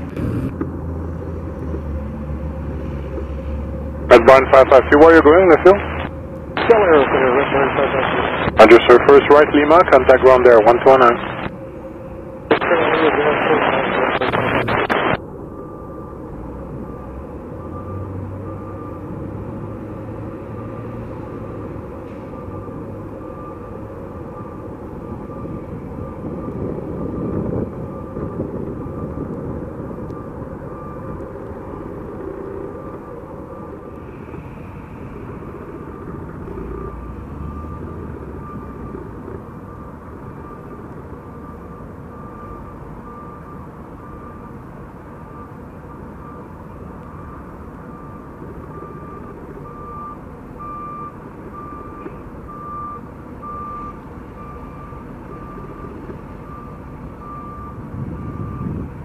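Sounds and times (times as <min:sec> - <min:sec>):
reversing alarm beeping: 0:03.5 - 0:58.8
jet engines rumbling: 0:04.0 - 0:16.6.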